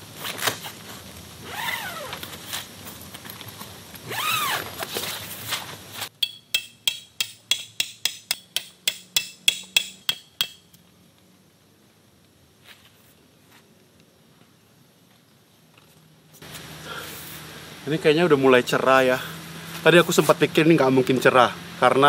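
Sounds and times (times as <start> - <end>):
rustling scrape: 4.5 - 6.1, 12.6 - 13.7
hammer striking metal stake: 6.2 - 10.8.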